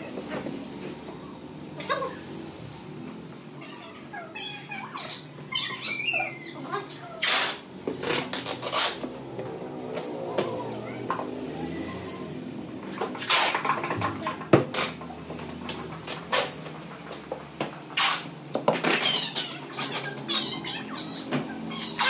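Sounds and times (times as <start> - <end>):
packing tape pulled off roll: 7.2 - 9.1, 18.0 - 20.2.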